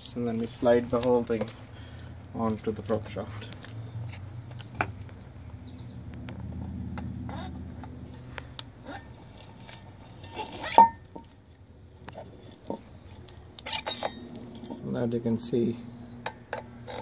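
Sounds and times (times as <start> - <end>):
metal clunk with ring: 10.6 - 11.2, 13.7 - 14.8, 16.2 - 17.0.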